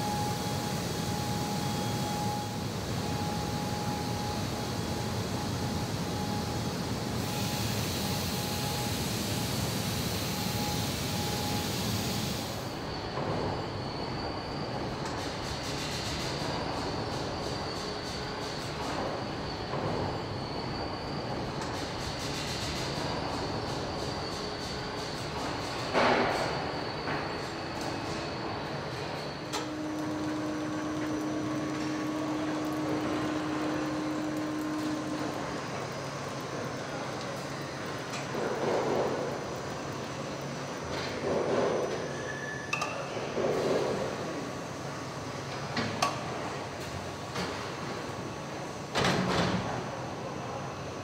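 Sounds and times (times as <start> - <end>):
machinery hum and whir: 0.0 - 51.0
factory machinery din: 21.6 - 39.3.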